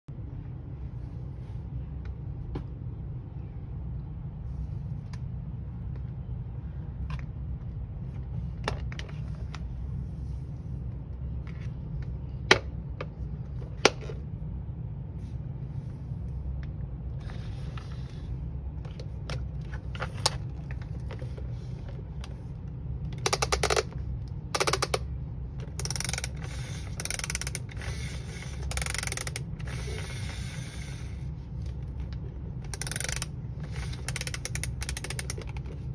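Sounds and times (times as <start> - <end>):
steady low hum: 0.1 - 35.9
ratcheting mechanism: 23.1 - 23.9, 24.5 - 25.0, 25.6 - 31.2, 32.6 - 35.7
plastic toy parts clicking: 23.2 - 25.0, 25.6 - 29.9, 32.6 - 35.7.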